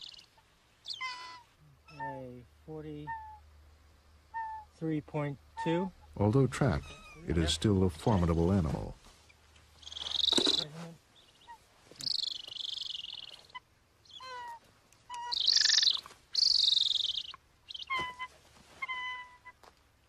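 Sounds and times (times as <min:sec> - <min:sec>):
eagle yelps: 0:00.0 - 0:02.3, 0:03.0 - 0:03.5, 0:04.3 - 0:04.8, 0:09.8 - 0:19.6
eagle calling: 0:00.0 - 0:03.6, 0:04.2 - 0:08.2, 0:09.2 - 0:19.6.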